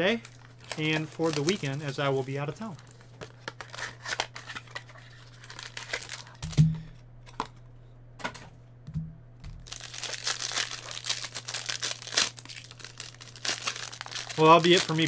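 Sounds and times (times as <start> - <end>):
foil wrapper crinkling: 0.0 - 6.6, 9.6 - 15.0.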